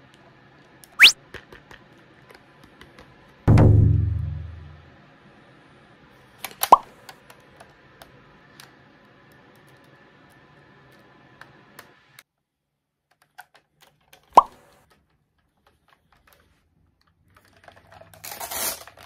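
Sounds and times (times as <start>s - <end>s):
comic pop sound effect: 1.0s - 1.2s
clicks and taps on plastic toy: 2.6s - 3.2s.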